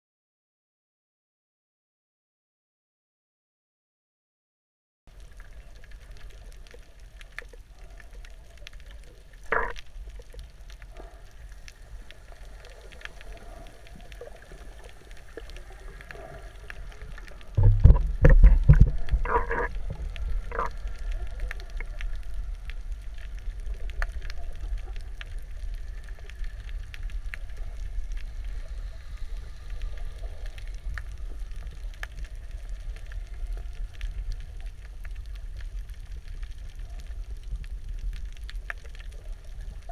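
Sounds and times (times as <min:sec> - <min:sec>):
low underwater rumble: 0:05.1 - 0:39.9
faint underwater clicks: 0:05.2 - 0:39.9
water rushing against camera: 0:06.0 - 0:27.8.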